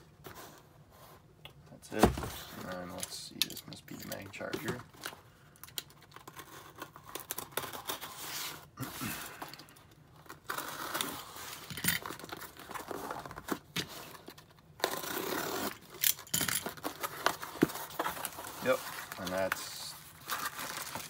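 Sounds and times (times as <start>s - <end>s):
cardboard rustling and tape tearing: 5.9s - 9.5s, 10.1s - 21.0s
knife slitting packing tape: 10.3s - 13.2s, 14.8s - 17.3s.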